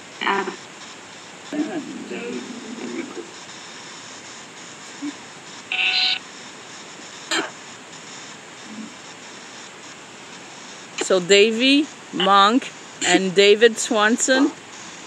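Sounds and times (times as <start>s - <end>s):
faint hiss: 0.0s - 15.0s
electronic beep: 5.7s - 6.2s.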